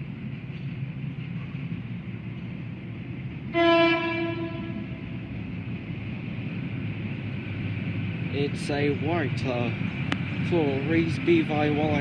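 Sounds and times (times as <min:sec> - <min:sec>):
electric train rumbling in tunnel: 0:00.0 - 0:12.0
train horn: 0:03.5 - 0:05.2.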